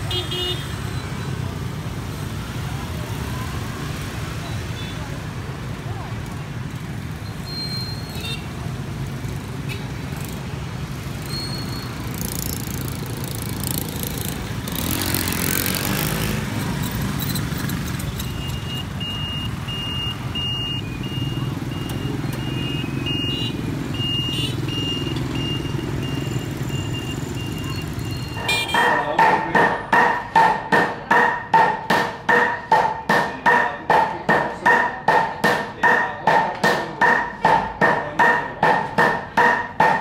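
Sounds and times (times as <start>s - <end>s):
cars and motorcycles driving past: 0.0s - 30.1s.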